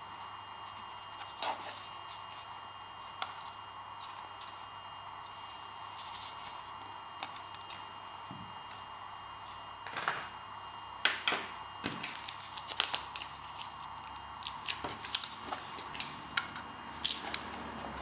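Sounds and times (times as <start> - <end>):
wrapping crinkling and clicking: 11.9 - 16.2.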